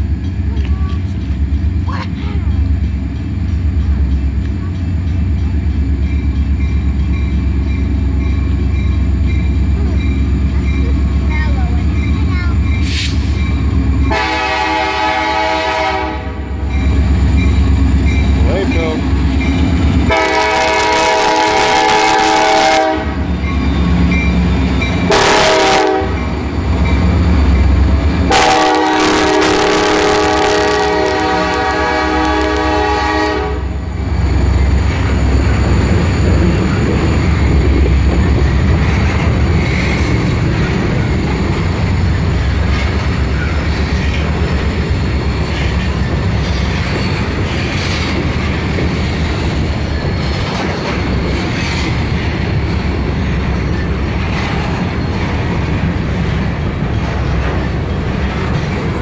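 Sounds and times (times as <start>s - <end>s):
wheels clattering on rails: 0.0s - 14.2s, 16.7s - 20.6s, 34.0s - 59.0s
locomotive engines rumbling: 0.0s - 59.0s
train air horn blasts: 14.1s - 16.6s, 20.1s - 23.3s, 25.1s - 26.3s, 28.2s - 33.8s.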